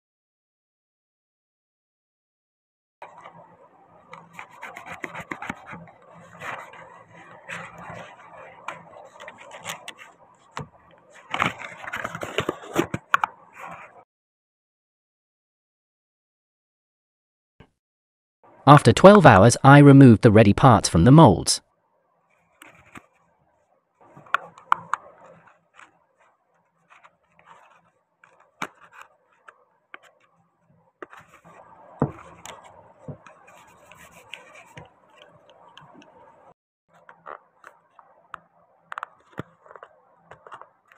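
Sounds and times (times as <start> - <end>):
rubber molds scraping and rubbing: 3.0 - 14.0, 22.4 - 23.3, 24.0 - 36.2, 36.9 - 40.9.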